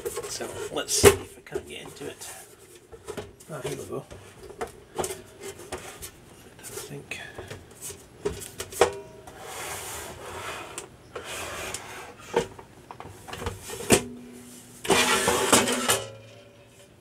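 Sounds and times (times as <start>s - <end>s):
metal cover scraping: 13.4s - 17.0s.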